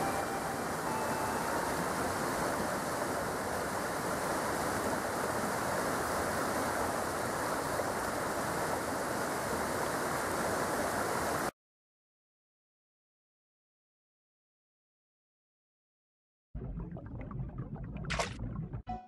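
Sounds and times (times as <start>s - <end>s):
stream rushing over boulders: 0.0s - 11.5s.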